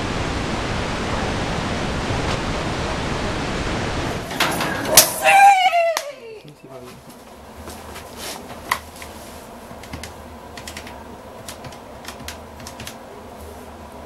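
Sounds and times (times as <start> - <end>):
steady low hum: 0.0 - 14.0
keyboard key clicks: 9.8 - 13.0.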